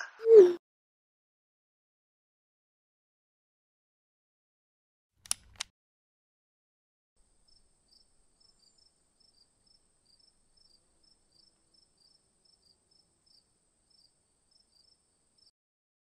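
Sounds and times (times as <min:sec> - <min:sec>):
crickets chirping: 0:07.2 - 0:15.5.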